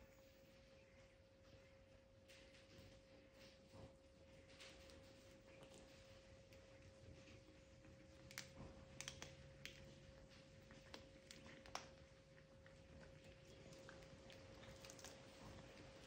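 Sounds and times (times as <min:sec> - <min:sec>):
cat chewing crunches: 0:04.9 - 0:16.0.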